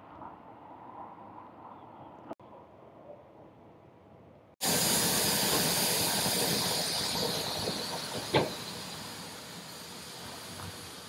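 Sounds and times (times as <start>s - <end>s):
steam venting hiss: 4.6s - 11.0s.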